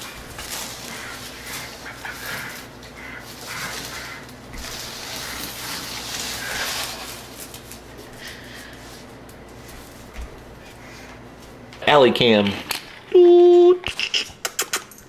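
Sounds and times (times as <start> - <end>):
dogs making breathy noises: 0.7 - 4.3.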